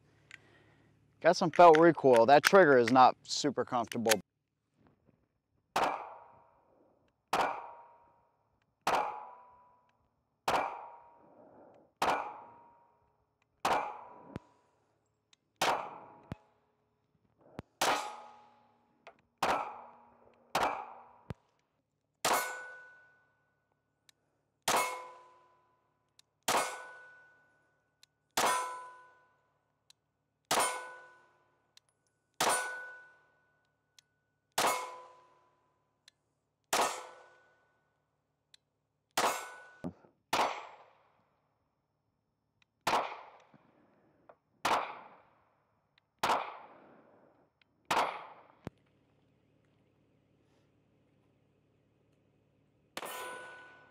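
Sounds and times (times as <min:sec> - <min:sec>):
pistol shots: 0:05.7 - 0:06.4, 0:07.2 - 0:08.0, 0:08.8 - 0:09.5, 0:10.4 - 0:11.1, 0:12.0 - 0:12.6, 0:13.6 - 0:14.5, 0:15.6 - 0:16.4, 0:17.6 - 0:18.5, 0:19.4 - 0:21.4, 0:26.5 - 0:27.2, 0:28.4 - 0:28.8, 0:30.5 - 0:31.0, 0:34.6 - 0:35.1, 0:36.7 - 0:37.3, 0:40.3 - 0:41.0, 0:42.8 - 0:43.7, 0:44.6 - 0:45.4, 0:46.2 - 0:47.1, 0:47.8 - 0:48.6
steel target ringing: 0:22.3 - 0:23.2, 0:24.7 - 0:25.4, 0:26.5 - 0:27.4, 0:28.4 - 0:29.2, 0:30.5 - 0:31.2, 0:32.4 - 0:33.2, 0:34.6 - 0:35.3, 0:39.2 - 0:39.8, 0:53.0 - 0:53.9.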